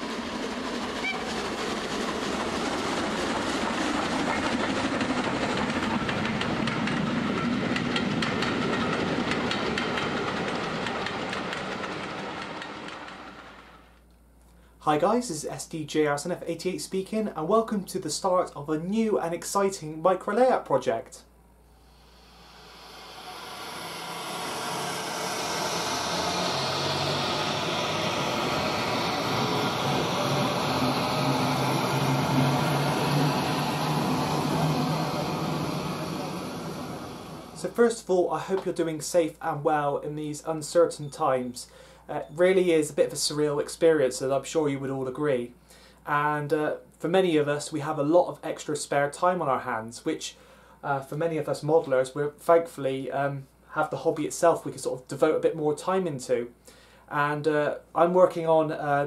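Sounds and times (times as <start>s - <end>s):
train rumbling: 0.0s - 14.0s, 21.8s - 41.2s
train wheels clicking over rail joints: 0.0s - 14.0s.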